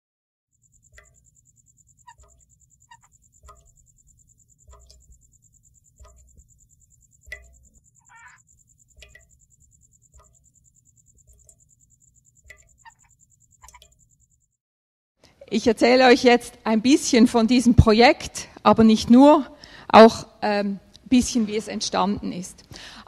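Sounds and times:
high-pitched insect trill: 0:00.5 - 0:14.6
croak-like calls: 0:00.7 - 0:14.2.

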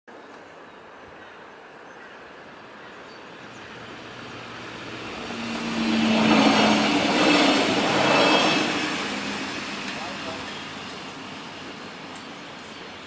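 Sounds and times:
train engines humming: 0:02.4 - 0:13.0
train wheels rushing on rails: 0:03.2 - 0:13.0.

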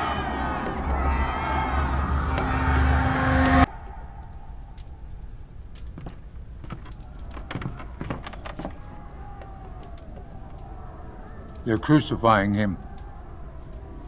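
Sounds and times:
crowd shouting: 0:00.0 - 0:04.7, 0:07.1 - 0:14.0
low room rumble: 0:00.0 - 0:05.8
faint clicks: 0:04.1 - 0:14.0.

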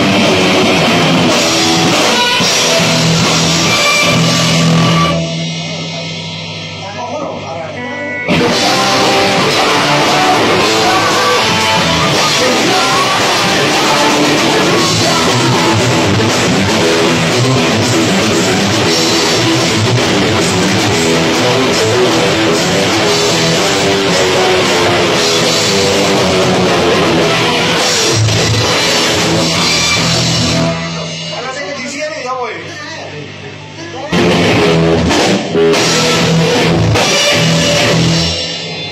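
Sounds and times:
bass guitar: 0:00.0 - 0:07.0, 0:07.8 - 0:31.6, 0:33.3 - 0:38.9
drum kit: 0:00.0 - 0:07.4, 0:08.3 - 0:32.3, 0:34.1 - 0:38.9
electric guitars: 0:00.0 - 0:31.5, 0:33.1 - 0:38.9
keyboard: 0:00.0 - 0:38.9.

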